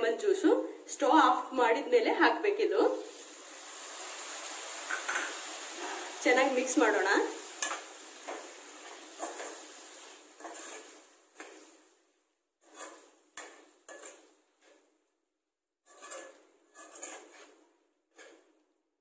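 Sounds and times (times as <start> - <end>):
pan sizzling: 2.4 - 15.0, 15.8 - 18.6
metal spoon scraping a wok: 7.5 - 11.9, 12.6 - 14.9, 15.8 - 18.6.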